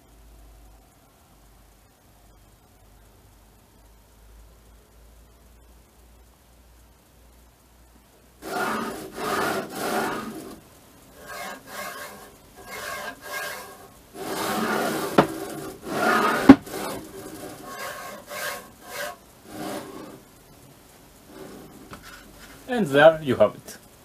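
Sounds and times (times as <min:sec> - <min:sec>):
rubbing and sliding strokes: 0:08.4 - 0:20.3, 0:21.2 - 0:22.7
sharp knocks: 0:14.3 - 0:17.0.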